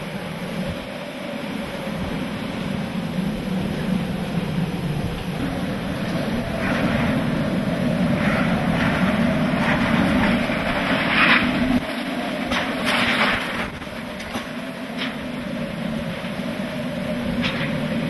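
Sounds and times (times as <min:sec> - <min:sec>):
wind buffeting a vehicle: 0:00.0 - 0:18.0.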